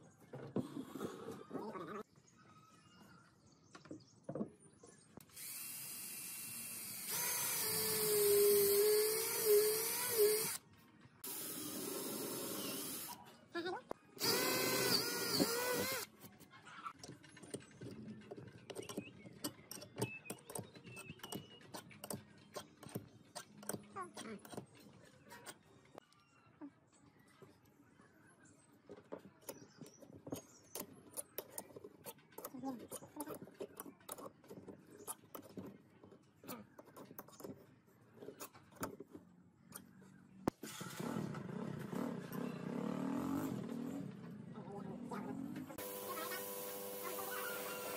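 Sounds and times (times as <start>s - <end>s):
electric drill boring wood: 5.3s - 10.6s, 11.2s - 13.2s, 14.2s - 16.1s, 45.8s - 47.9s
screw clicks and scrapes: 16.9s - 25.6s, 29.4s - 40.0s.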